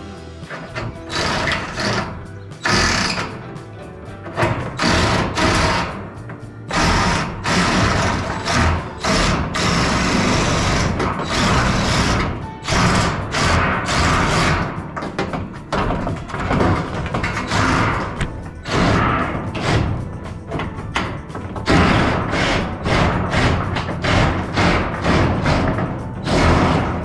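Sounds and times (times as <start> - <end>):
music playing: 0.0 - 27.0
power shear cutting steel sheet: 1.1 - 3.3, 4.8 - 6.0, 6.7 - 14.8, 21.7 - 27.0.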